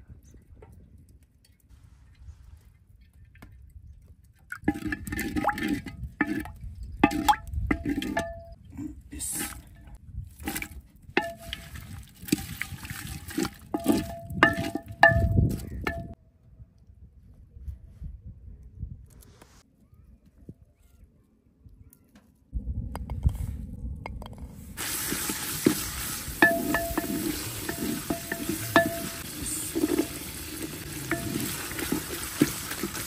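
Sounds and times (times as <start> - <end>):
spoon knocking clay pot: 13.8 - 16.2, 25.6 - 30.2, 31.1 - 33.0
wooden spoon stirring onions: 24.9 - 33.0.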